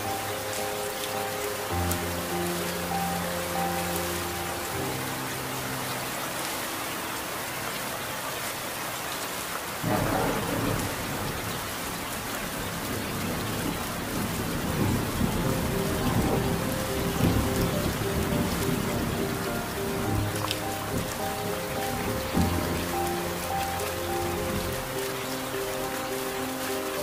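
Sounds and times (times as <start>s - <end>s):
heavy rain falling: 0.0s - 27.0s
thunder rumbling: 9.8s - 27.0s.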